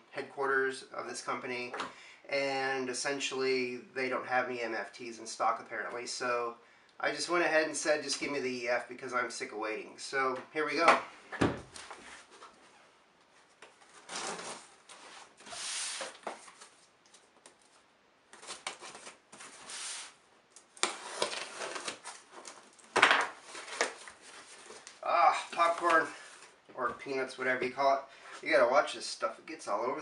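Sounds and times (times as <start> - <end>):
cardboard flaps tearing and rustling: 13.8 - 16.8, 20.8 - 25.0
packing tape being slit and torn: 18.4 - 22.6.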